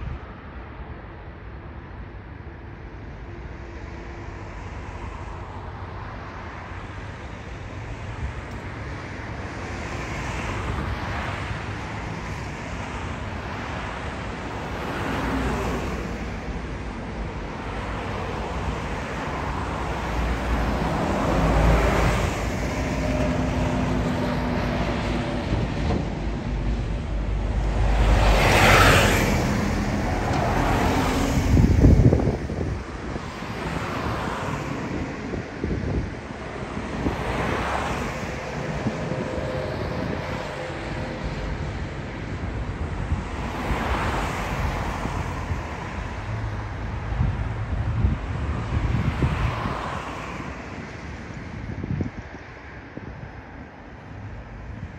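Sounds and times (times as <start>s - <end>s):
wind: 0.0s - 54.9s
jet engine roar: 14.6s - 46.1s.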